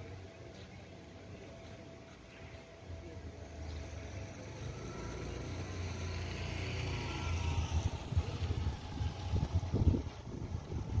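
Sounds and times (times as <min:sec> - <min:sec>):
engine running with low rumble: 0:00.0 - 0:11.0
wind buffeting microphone: 0:07.3 - 0:11.0.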